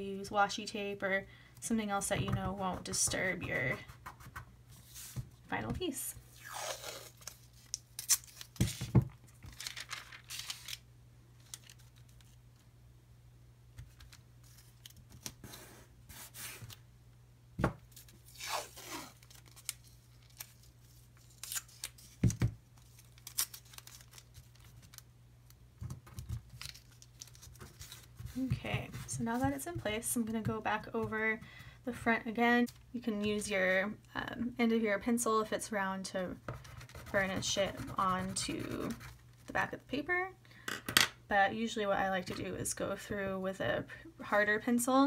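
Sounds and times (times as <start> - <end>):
tracing paper rustling: 2.3 - 10.8, 25.8 - 30.4.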